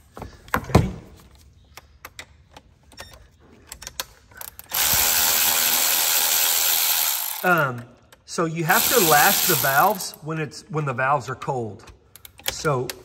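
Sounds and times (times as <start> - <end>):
ratchet clicks: 3.8 - 7.8, 8.8 - 10.1
electric ratchet motor running: 4.7 - 7.6, 8.7 - 10.2.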